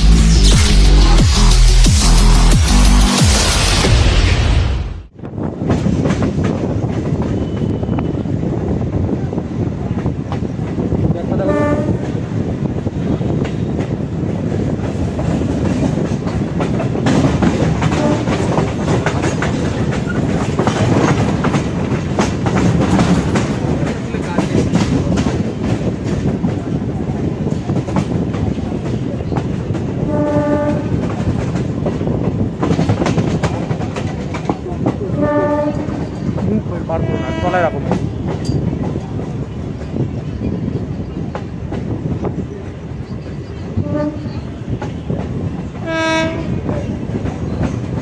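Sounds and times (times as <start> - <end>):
train wheels clattering over rail joints: 5.4 - 8.0, 11.8 - 36.8, 37.7 - 48.0
train horn: 11.4 - 12.1, 17.8 - 18.6, 30.0 - 31.2, 35.1 - 36.2, 36.9 - 38.0, 43.8 - 44.5, 45.8 - 46.8.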